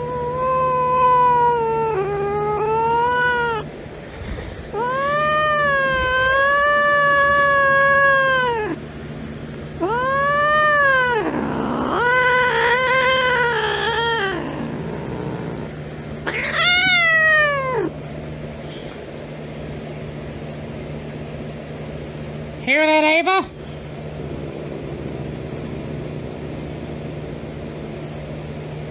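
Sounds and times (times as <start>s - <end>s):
cat yowling: 0.0s - 3.7s, 4.7s - 8.8s, 9.8s - 18.0s.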